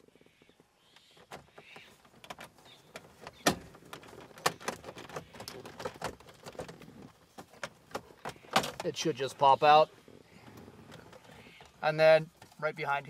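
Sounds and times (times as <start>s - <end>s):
plastic clicks and knocks: 1.3s - 8.9s.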